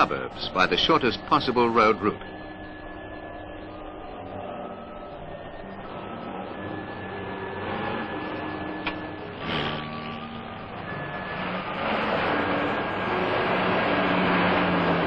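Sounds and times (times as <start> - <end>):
truck and car engines: 0.0 - 15.0.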